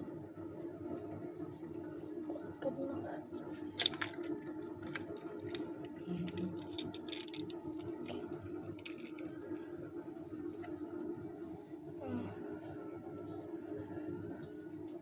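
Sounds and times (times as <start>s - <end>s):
kitchen utensils clicking and tapping: 3.8s - 9.2s.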